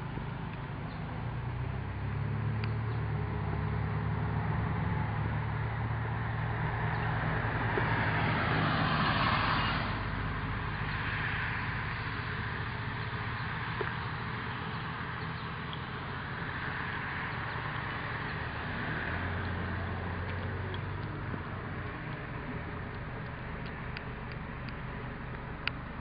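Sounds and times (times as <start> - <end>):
car driving past: 0.9 - 26.0
steady low rumble: 9.3 - 26.0.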